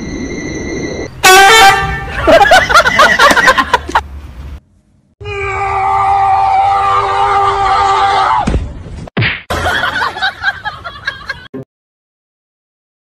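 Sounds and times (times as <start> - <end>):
person screaming: 5.2 - 8.5.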